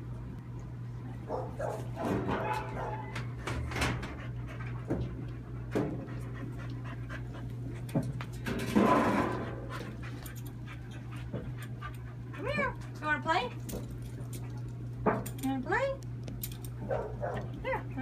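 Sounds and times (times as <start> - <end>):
dog panting and whining: 2.4 - 8.4, 9.4 - 14.8.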